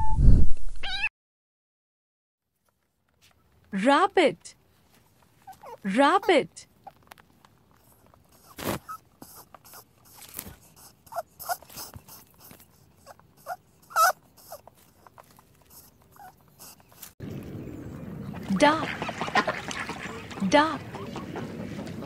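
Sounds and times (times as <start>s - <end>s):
rabbits crunching and gnawing: 4.6s - 5.9s, 6.7s - 22.0s
squeaky chirps: 5.4s - 7.0s, 8.3s - 15.0s.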